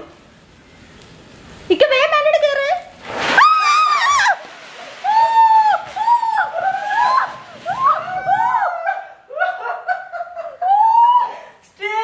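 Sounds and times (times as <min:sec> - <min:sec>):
high firework squeals: 0:03.0 - 0:08.7.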